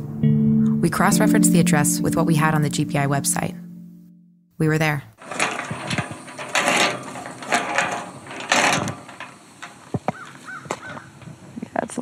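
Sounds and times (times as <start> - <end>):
metal gate rattling: 5.2 - 11.6.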